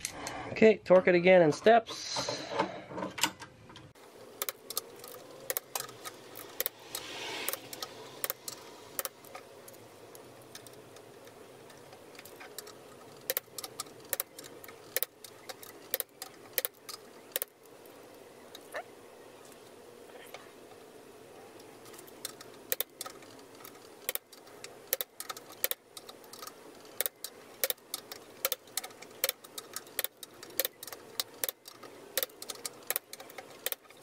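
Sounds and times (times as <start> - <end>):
torque wrench clicking: 4.4 - 17.6, 22.2 - 34.0.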